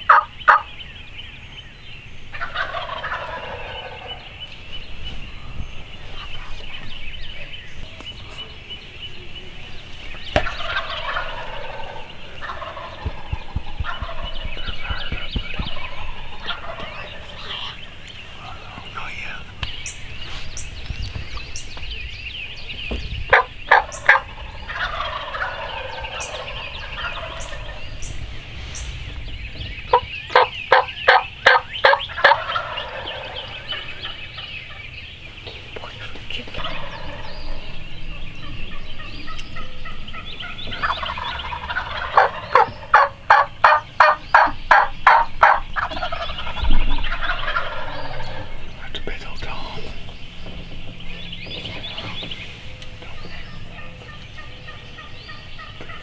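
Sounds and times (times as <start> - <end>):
songbirds singing: 0.0 - 56.0
turkey yelping: 0.1 - 0.7, 2.3 - 4.4, 10.3 - 18.0, 23.3 - 27.8, 29.9 - 34.8, 36.6 - 48.6.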